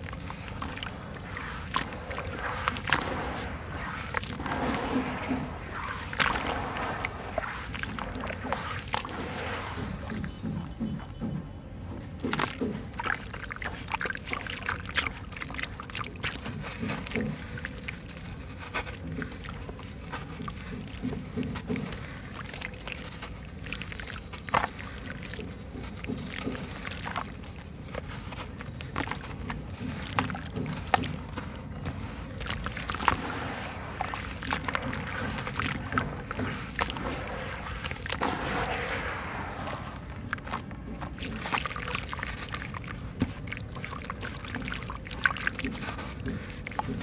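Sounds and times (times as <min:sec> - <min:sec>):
water sloshing: 0:00.0 - 0:47.0
gritty crunching of cement lumps: 0:12.1 - 0:47.0.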